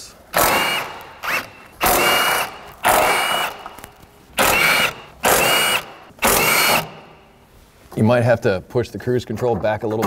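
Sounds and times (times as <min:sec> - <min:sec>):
impact wrench whining: 0:00.3 - 0:07.3.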